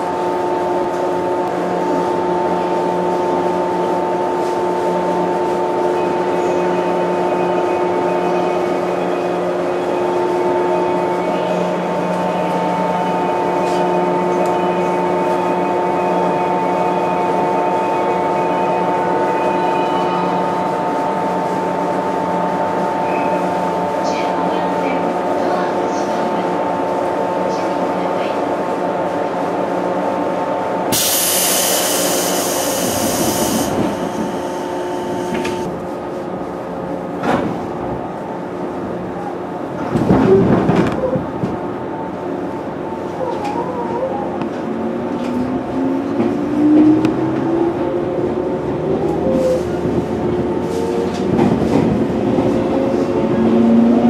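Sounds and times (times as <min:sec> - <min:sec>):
train car electrical hum: 0:00.0 - 0:40.0
train equipment hum: 0:29.9 - 0:40.0
compressed air hiss: 0:31.0 - 0:34.0.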